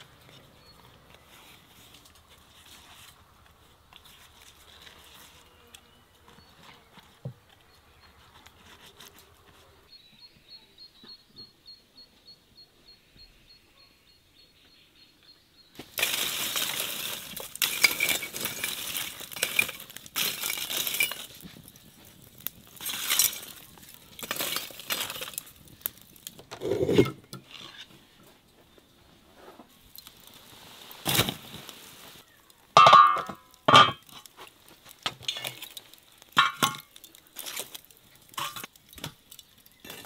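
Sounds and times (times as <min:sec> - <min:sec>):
coals clinking and crunching: 0:00.0 - 0:09.8, 0:15.7 - 0:40.0.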